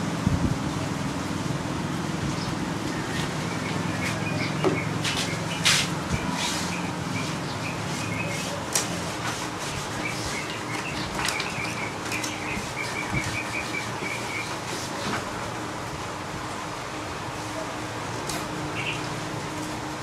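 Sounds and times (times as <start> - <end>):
bird chirping: 3.4 - 8.6, 9.9 - 14.6, 18.8 - 19.1.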